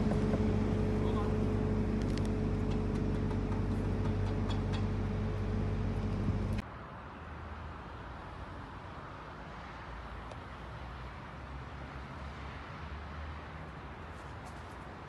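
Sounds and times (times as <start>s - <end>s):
diesel engine running: 0.0s - 6.6s.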